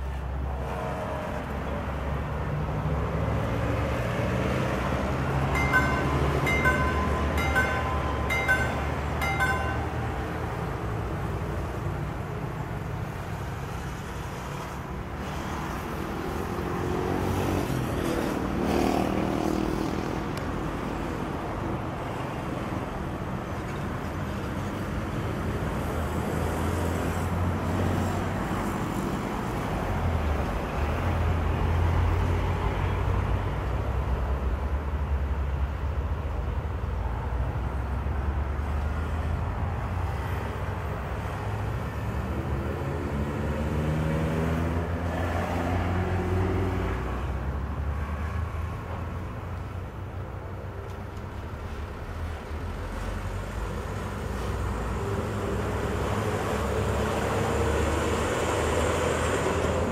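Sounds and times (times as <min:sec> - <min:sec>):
road traffic engines: 0:00.0 - 0:59.9.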